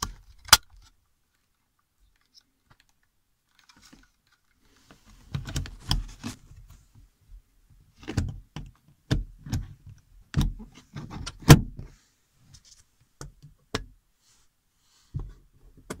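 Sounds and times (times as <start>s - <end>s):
plastic clicks and rustling: 0.0s - 6.4s.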